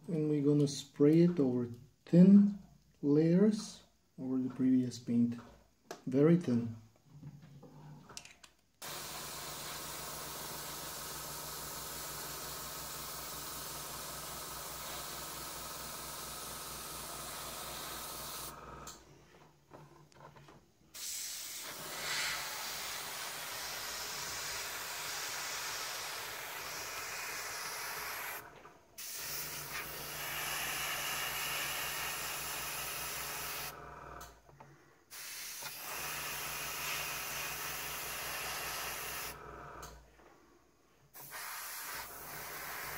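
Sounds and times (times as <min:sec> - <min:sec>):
airbrush hissing: 0:08.8 - 0:18.6, 0:20.9 - 0:33.8, 0:35.1 - 0:39.4, 0:41.1 - 0:42.9
air compressor humming: 0:08.8 - 0:19.0, 0:20.9 - 0:34.4, 0:35.1 - 0:40.1, 0:41.1 - 0:42.9.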